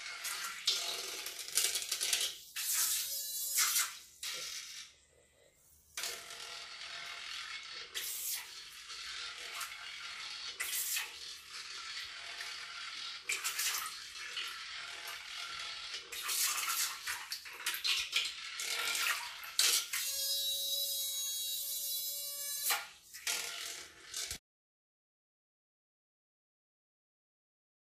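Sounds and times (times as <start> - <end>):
high-pitched motor whine: 20.0 - 22.8.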